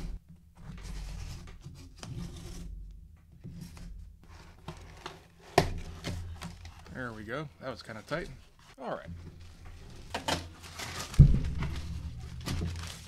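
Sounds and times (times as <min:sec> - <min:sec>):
packing tape being cut and torn: 0:10.0 - 0:11.2
cardboard box knock: 0:11.2 - 0:12.9.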